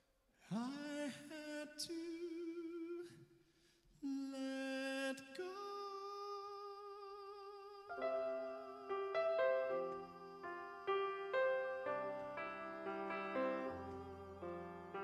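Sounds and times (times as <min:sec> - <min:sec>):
person singing wordless held notes: 0:04.0 - 0:15.0.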